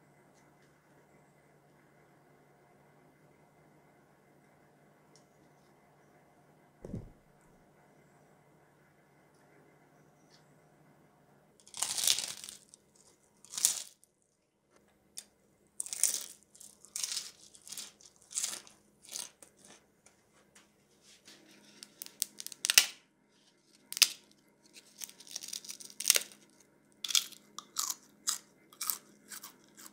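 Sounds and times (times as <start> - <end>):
pork rind crunching: 11.6 - 14.1, 15.8 - 19.8, 21.8 - 23.0, 23.8 - 29.9.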